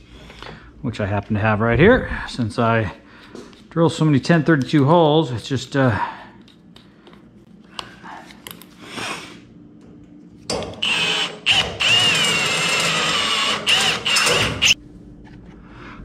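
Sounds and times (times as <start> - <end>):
power drill drilling metal: 10.5 - 14.8.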